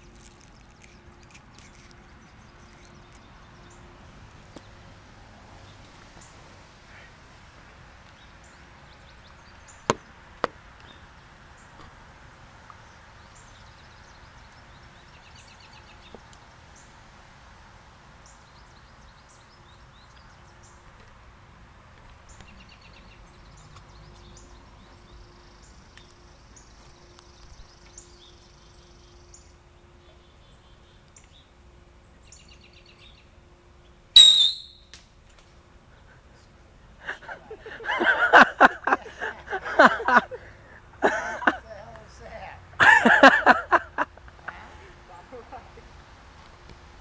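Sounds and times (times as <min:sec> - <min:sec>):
faint steady hum: 0:00.0 - 0:47.0
bird chirps: 0:34.2 - 0:34.9
sharp cracks: 0:34.2 - 0:35.5.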